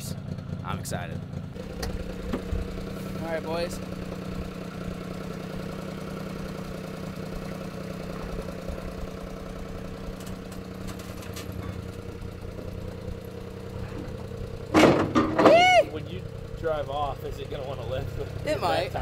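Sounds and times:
small engine idling: 0.0s - 19.0s.

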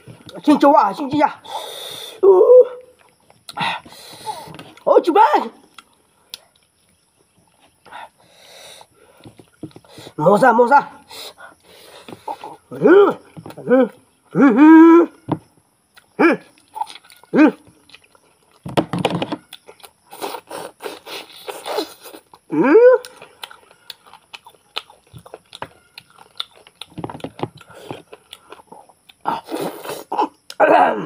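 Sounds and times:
man chewing meat: 15.9s - 18.7s, 19.4s - 30.5s.

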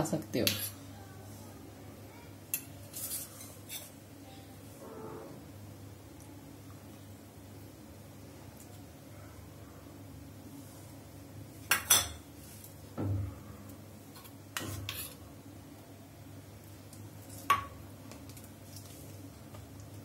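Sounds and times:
dishes and spoon clinking: 11.7s - 12.3s.

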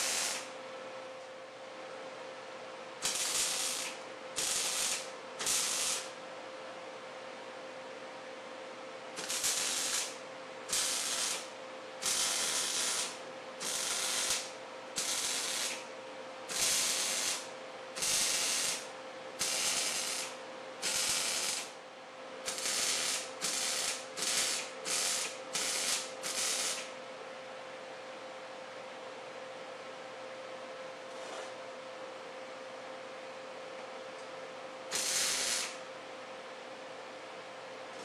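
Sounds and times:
welder arc bursts: 0.0s - 0.5s, 3.0s - 6.2s, 9.2s - 15.8s, 16.5s - 21.8s, 22.5s - 26.9s, 34.9s - 35.8s
steady hum: 0.0s - 31.0s.

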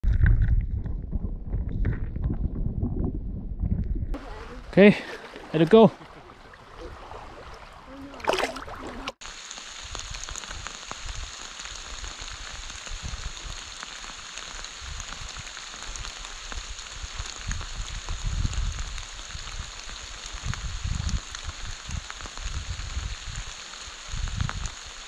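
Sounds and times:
dull low thumps: 0.0s - 4.4s
water splash: 4.2s - 12.8s
rain pattering: 7.6s - 25.0s.

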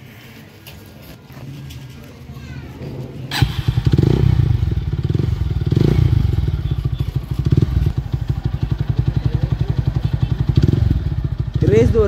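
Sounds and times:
motorcycle engine idling: 3.3s - 12.0s.

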